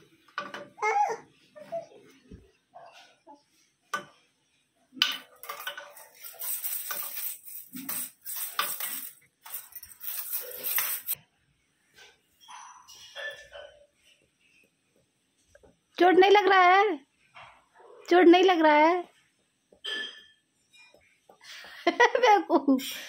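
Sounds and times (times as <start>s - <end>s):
toy rattle shaken: 6.1s - 11.2s.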